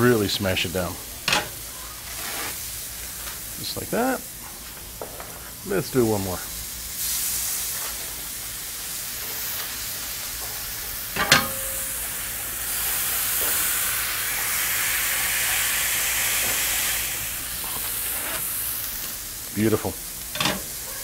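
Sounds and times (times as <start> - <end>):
meat patty sizzling: 0.0 - 21.0
metal press clanking: 11.2 - 11.9, 20.3 - 20.7.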